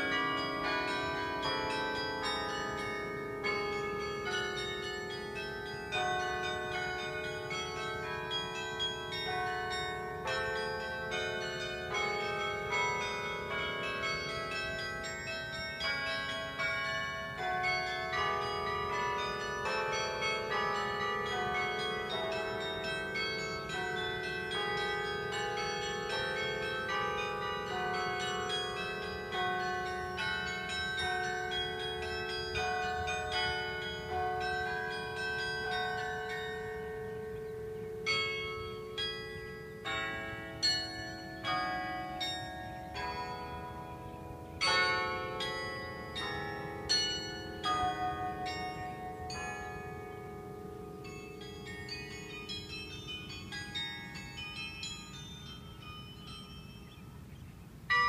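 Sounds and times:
carillon bells playing a tune: 0.0s - 58.0s.

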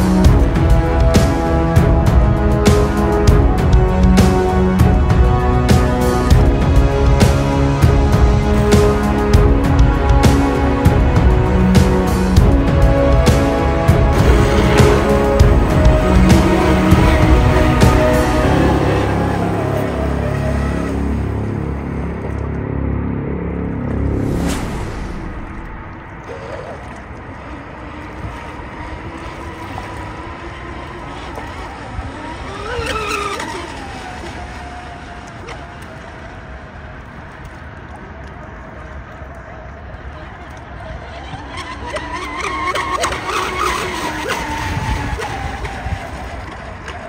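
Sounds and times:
electric boat motors whining: 0.0s - 23.2s, 26.2s - 47.0s
wind and water hiss: 24.2s - 41.4s
electric motor whine: 27.4s - 36.2s.

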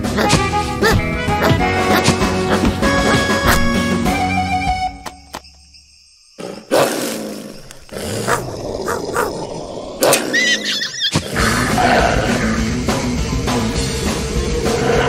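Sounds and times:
cartoon wolves snarling and growling: 6.4s - 15.0s.

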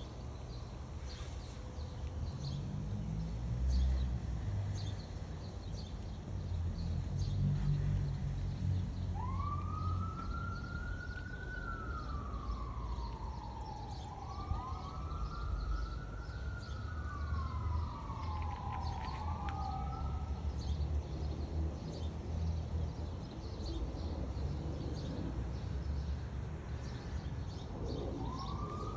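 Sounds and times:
emergency siren wailing: 6.8s - 20.8s, 27.9s - 28.9s.

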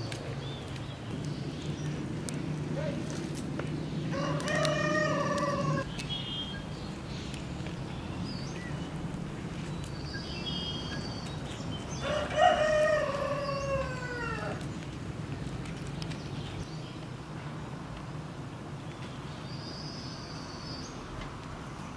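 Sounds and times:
rooster crowing: 4.1s - 5.9s, 12.0s - 14.6s.

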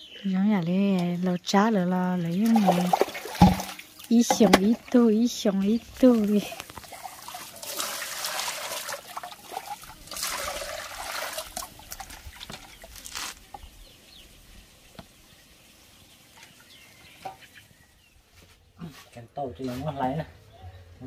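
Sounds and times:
water trickling and splashing: 0.9s - 18.2s
water pouring into basin: 2.4s - 13.3s.

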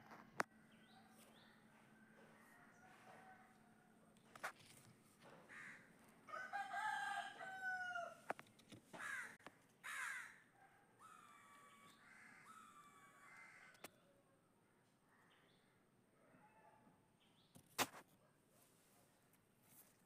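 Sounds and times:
rooster crowing: 6.3s - 8.2s, 11.0s - 13.7s.

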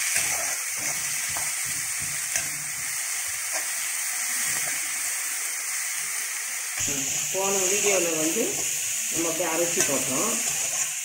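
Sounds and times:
spatula scraping metal pan: 0.0s - 2.8s
onions sizzling in hot oil: 0.0s - 11.0s.

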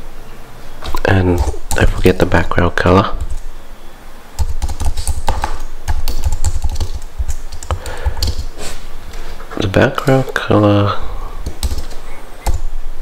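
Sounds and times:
typing on computer keyboard: 4.4s - 8.5s, 11.4s - 12.6s.

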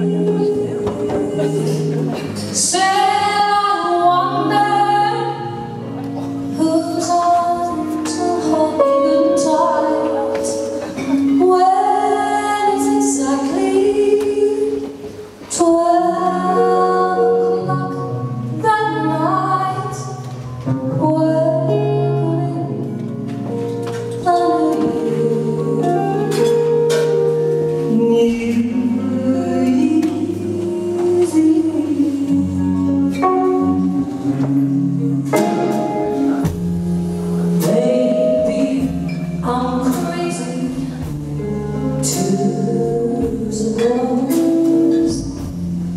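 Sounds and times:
upright double bass: 0.0s - 14.0s, 15.9s - 45.9s
electric guitar: 0.0s - 45.9s
woman singing into a microphone: 0.0s - 45.9s.

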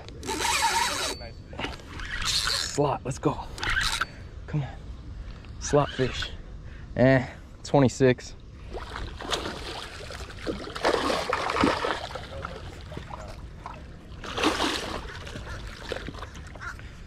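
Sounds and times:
fish thrashing and splashing: 8.7s - 16.7s.

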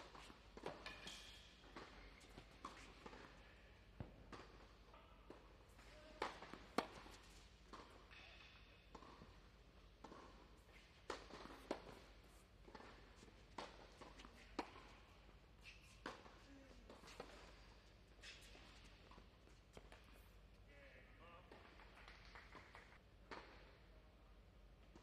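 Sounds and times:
tennis ball hits and bounces: 0.0s - 3.4s, 4.0s - 15.0s, 16.0s - 17.6s, 21.5s - 23.7s.

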